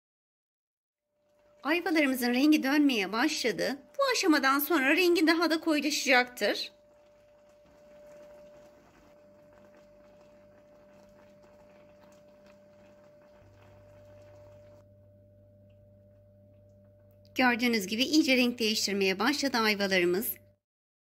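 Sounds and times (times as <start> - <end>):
syrup bubbling in a pot: 1.1 - 17.2
steady low hum: 1.3 - 18.0.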